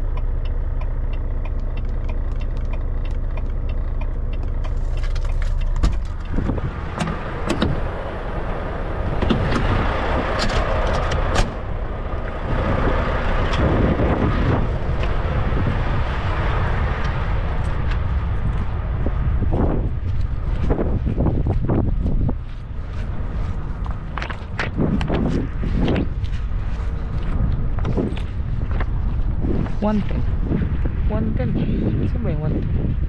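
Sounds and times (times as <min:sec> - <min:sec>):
diesel engine idling: 0:00.0 - 0:32.0
footsteps crunching on gravel: 0:19.6 - 0:30.0.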